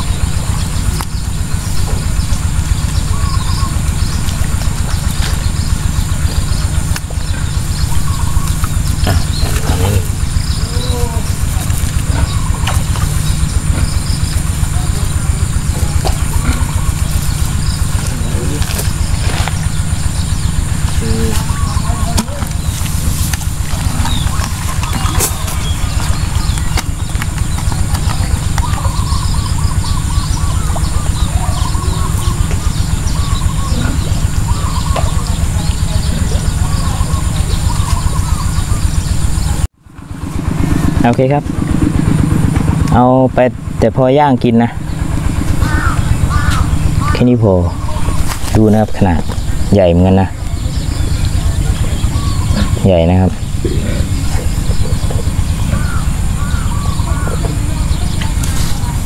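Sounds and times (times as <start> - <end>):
bird chirping: 0.0 - 59.0
small engine chugging: 0.0 - 59.0
wind buffeting microphone: 0.0 - 59.0
faint short calls: 44.8 - 59.0.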